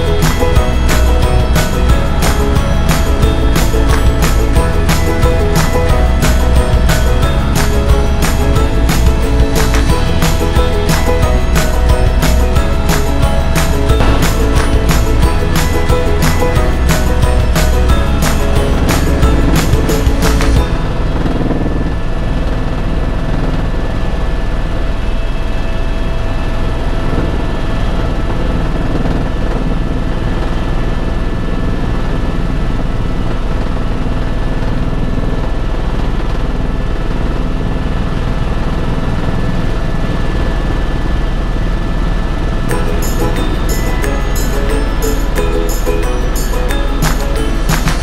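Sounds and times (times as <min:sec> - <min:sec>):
steady high tones: 0:00.0 - 0:28.6, 0:42.6 - 0:48.0
helicopter rotor and engine drone: 0:17.4 - 0:45.8.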